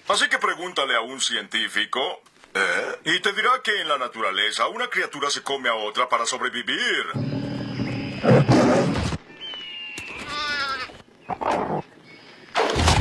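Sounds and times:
cartoon animal roar: 8.1 - 9.1.

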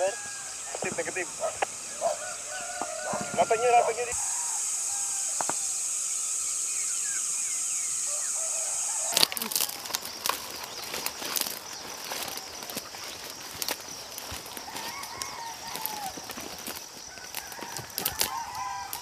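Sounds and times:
footsteps through brush: 0.0 - 4.5, 8.4 - 19.0
faint chirps: 0.0 - 19.0
insect chorus: 0.0 - 19.0.

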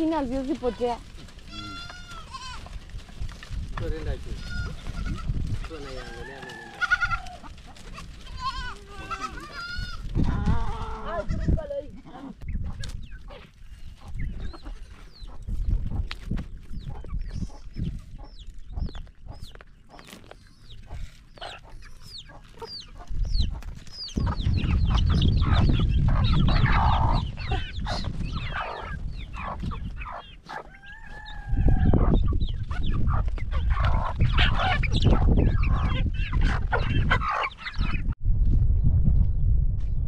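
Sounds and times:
chickens clucking and cheeping: 1.2 - 11.2, 12.0 - 38.2
chicken drawn-out call: 4.3 - 11.2, 24.2 - 38.0.

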